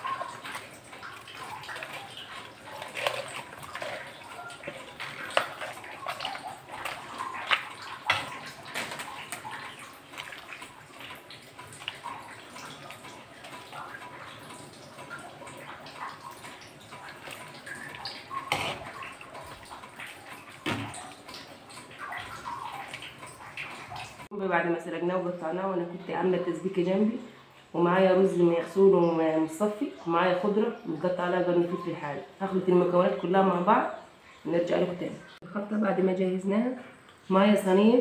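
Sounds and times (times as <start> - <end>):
water sloshing in a metal pot: 0.0 - 37.9.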